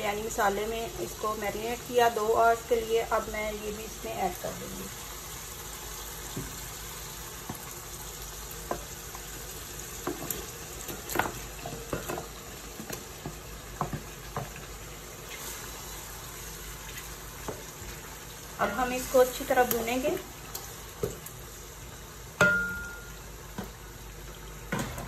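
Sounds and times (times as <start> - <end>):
chicken sizzling in hot oil: 0.0 - 25.0
wooden spatula knocking and scraping: 10.0 - 14.7.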